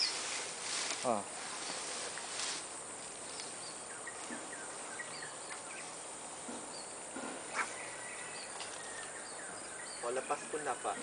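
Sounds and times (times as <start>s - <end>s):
steady swamp hiss: 0.0s - 11.0s.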